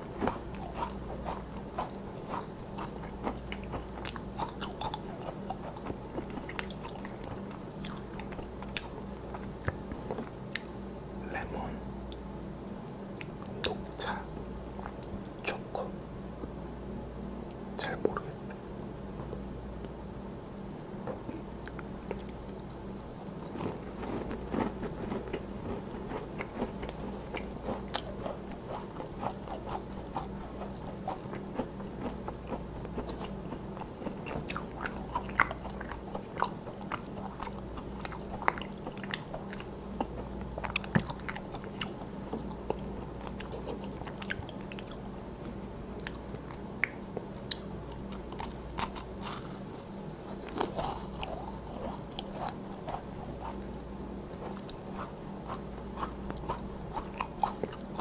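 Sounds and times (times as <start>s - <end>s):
crunchy chewing: 0.0s - 11.5s, 21.0s - 58.0s
steady low hum: 0.0s - 58.0s.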